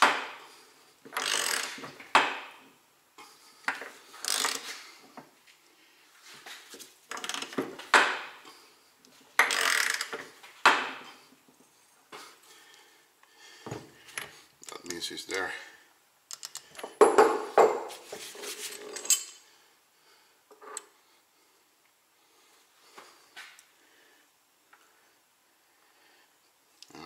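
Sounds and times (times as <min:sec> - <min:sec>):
grinding creaking metal: 0:01.2 - 0:01.8, 0:04.2 - 0:04.8, 0:09.4 - 0:10.1.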